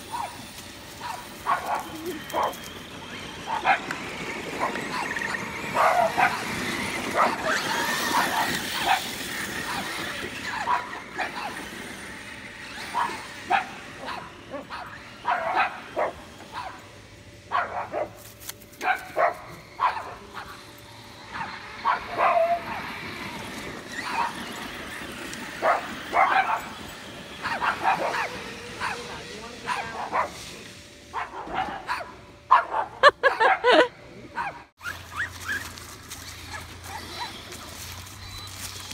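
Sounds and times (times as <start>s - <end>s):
low background hum: 0.0s - 38.9s
rc car motor and tyres on dirt: 0.0s - 38.9s
dog yipping: 0.1s - 0.4s, 1.0s - 2.6s, 4.5s - 11.7s, 12.7s - 16.8s, 21.3s - 22.9s, 23.9s - 24.6s, 25.6s - 26.8s, 34.4s - 35.8s, 36.4s - 38.4s
girls yelping and squealing: 1.7s - 3.4s.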